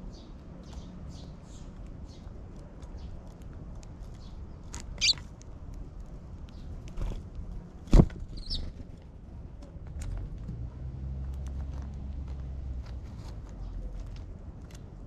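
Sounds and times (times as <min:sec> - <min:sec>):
sparrows chirping: 0:00.0 - 0:03.4, 0:04.0 - 0:05.3, 0:08.3 - 0:08.8.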